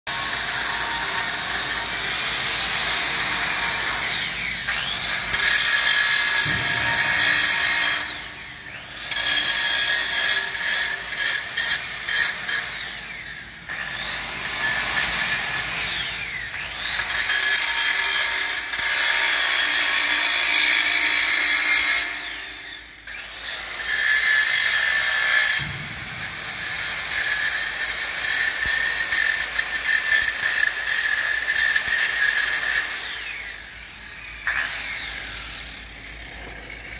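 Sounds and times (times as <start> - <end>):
angle grinder grinding steel: 0.1 - 36.9.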